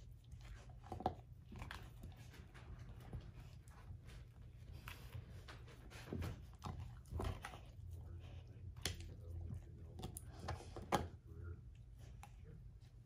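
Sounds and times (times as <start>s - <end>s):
dog gnawing and chewing: 0.0s - 13.0s.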